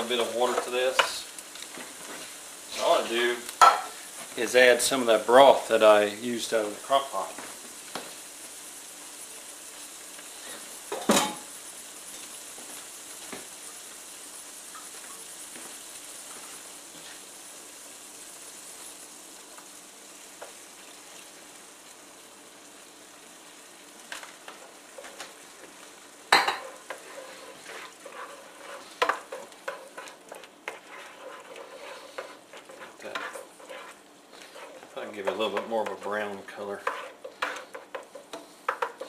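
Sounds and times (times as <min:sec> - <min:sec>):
onions sizzling in a skillet: 0:00.0 - 0:39.0
spoon scraping a pan: 0:03.6 - 0:04.2, 0:26.3 - 0:39.0.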